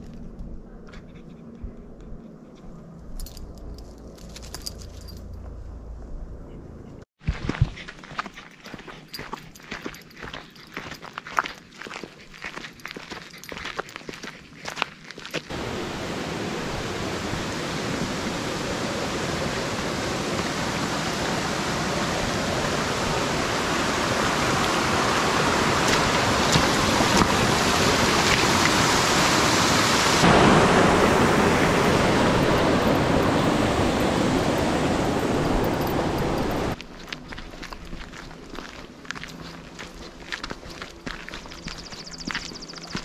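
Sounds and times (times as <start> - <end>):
running water rushing: 15.5 - 36.8.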